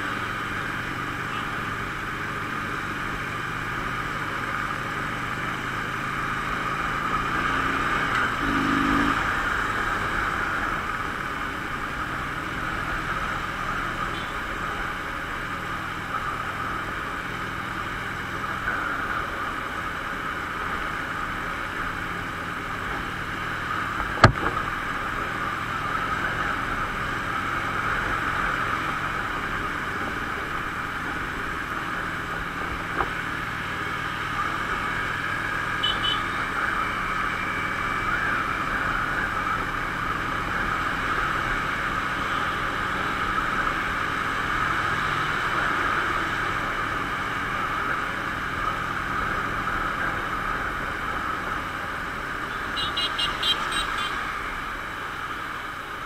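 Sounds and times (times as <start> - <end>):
motorcycle engine cruising: 0.0 - 56.0
sharp knock: 24.2 - 24.5.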